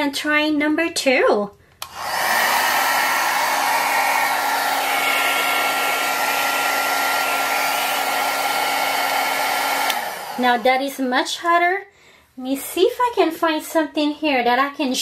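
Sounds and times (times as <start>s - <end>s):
hair dryer switch click: 1.8s - 2.9s, 8.8s - 10.4s
hair dryer running: 1.8s - 11.0s.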